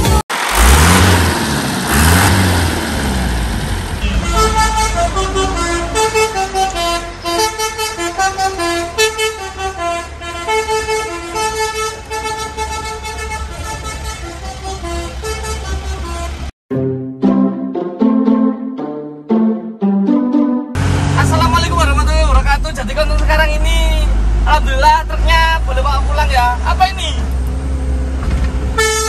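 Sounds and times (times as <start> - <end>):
truck engine running: 0.0 - 16.5, 20.8 - 29.0
multi-tone truck horn melody: 4.0 - 21.9, 28.7 - 29.0.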